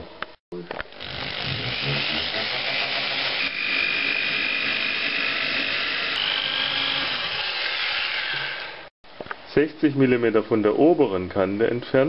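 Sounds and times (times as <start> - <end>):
electric drill whining: 0.9 - 8.9.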